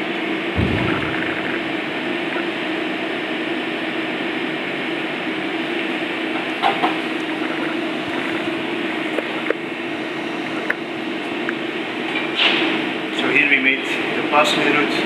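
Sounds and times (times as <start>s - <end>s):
constant hum: 0.6s - 3.6s, 5.6s - 12.5s.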